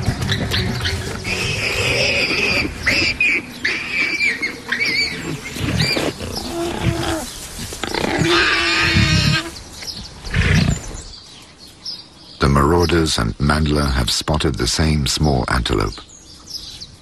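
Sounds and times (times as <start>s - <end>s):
lions growling and snarling: 0.0s - 9.6s, 10.2s - 11.1s
higher-pitched animal calls: 0.2s - 9.6s.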